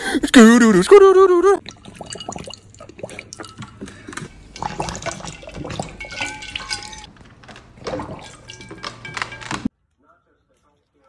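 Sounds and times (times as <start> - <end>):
dog lapping water: 1.6 - 7.0, 7.8 - 8.8
water splashing and dripping: 1.6 - 9.7.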